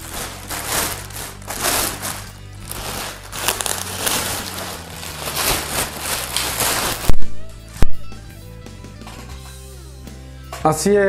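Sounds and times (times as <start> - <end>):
plastic bag crinkling: 0.0 - 8.0
background music: 0.0 - 11.0.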